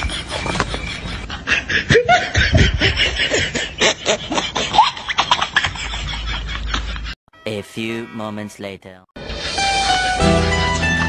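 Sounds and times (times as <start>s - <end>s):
girls giggling: 0.0s - 7.2s.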